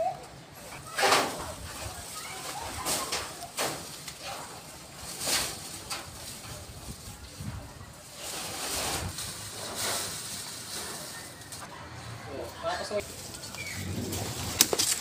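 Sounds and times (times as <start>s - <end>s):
plastic bag and leaves rustling: 0.0s - 11.7s, 12.4s - 15.0s.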